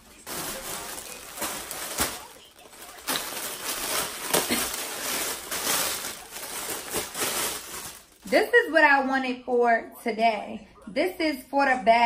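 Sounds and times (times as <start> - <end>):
plastic bag crinkling and rustling: 0.0 - 9.0.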